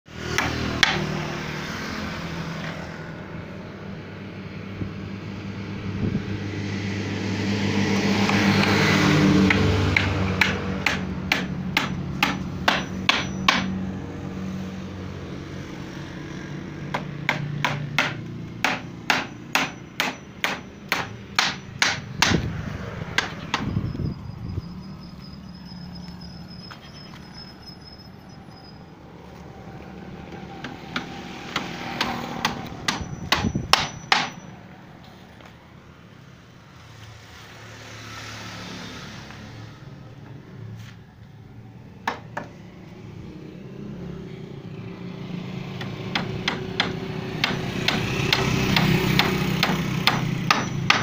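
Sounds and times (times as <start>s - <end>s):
hammer striking wood: 0.3s - 1.1s, 9.4s - 13.8s, 16.9s - 22.5s, 23.2s - 23.7s, 30.6s - 34.4s, 42.0s - 42.5s, 45.8s - 51.0s.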